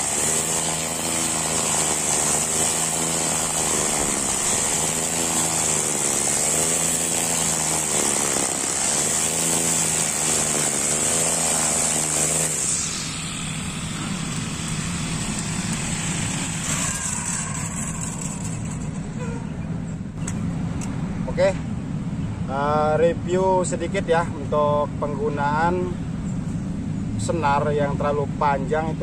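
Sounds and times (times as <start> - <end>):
brush cutter engine: 0.0 - 19.4.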